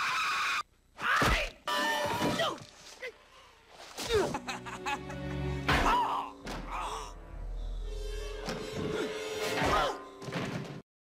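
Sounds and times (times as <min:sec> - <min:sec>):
person crying out: 0:05.8 - 0:07.2.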